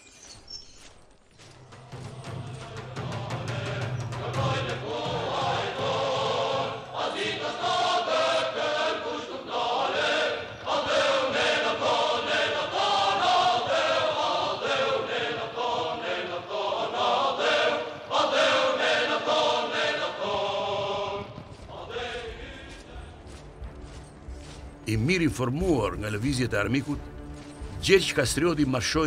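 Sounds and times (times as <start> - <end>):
choir singing a chant: 1.7 - 23.5.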